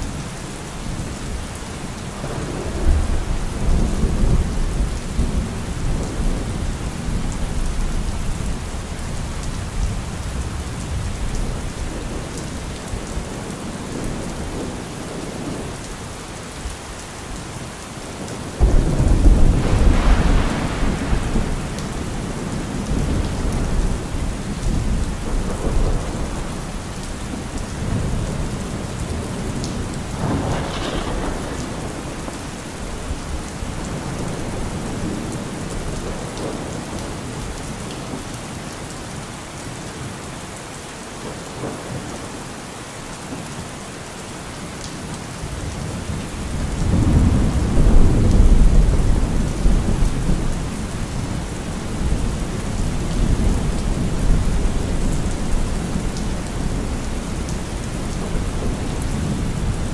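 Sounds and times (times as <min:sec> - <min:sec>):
steady rain falling: 0:00.0 - 0:59.9
thunder rumbling: 0:18.6 - 0:37.3, 0:45.5 - 0:59.9.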